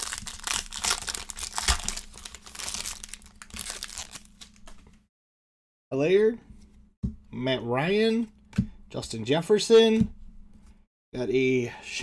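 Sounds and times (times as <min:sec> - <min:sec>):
foil wrapper tearing and crinkling: 0:00.0 - 0:04.8.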